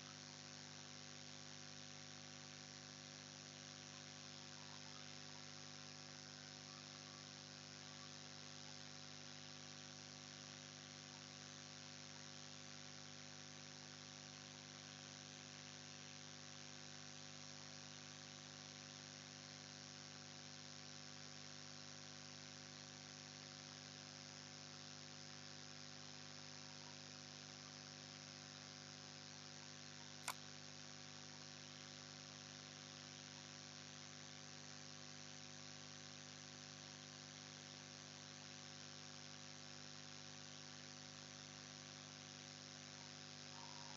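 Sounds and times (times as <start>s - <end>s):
electrical mains hum: 0.0s - 16.0s.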